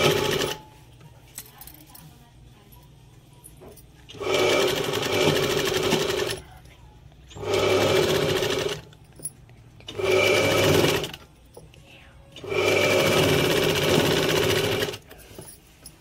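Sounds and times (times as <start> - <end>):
sewing machine stitching: 0.0 - 0.7, 4.1 - 6.5, 7.3 - 8.9, 9.9 - 11.3, 12.4 - 15.5.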